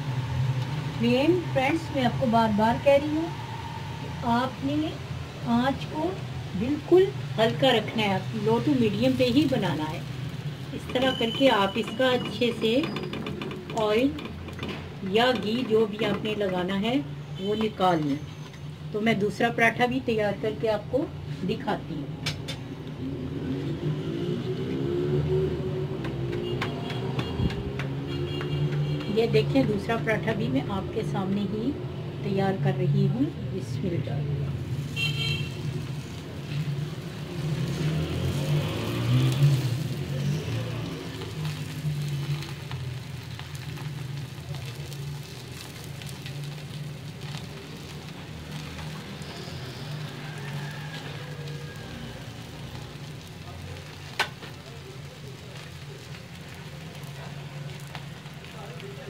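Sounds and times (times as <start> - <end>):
oil sizzling in a pan: 0.0 - 21.6, 34.2 - 59.0
small crackling pops: 25.9 - 29.9, 34.8 - 59.0.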